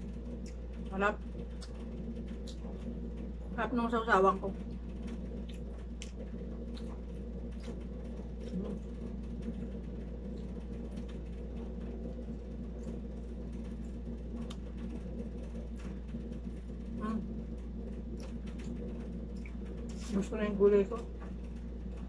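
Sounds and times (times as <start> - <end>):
air conditioner humming: 0.0 - 22.0
chewing: 5.1 - 9.6.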